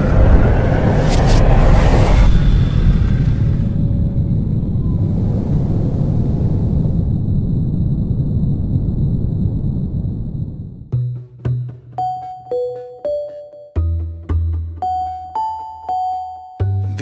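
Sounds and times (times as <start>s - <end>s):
loud low rumble: 0.0s - 11.2s.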